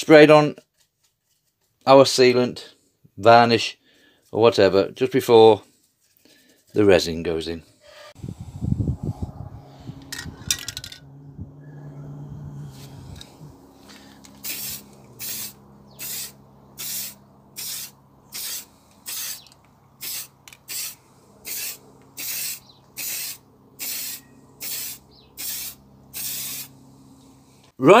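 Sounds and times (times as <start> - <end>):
aerosol spray hissing bursts: 14.2 - 26.8.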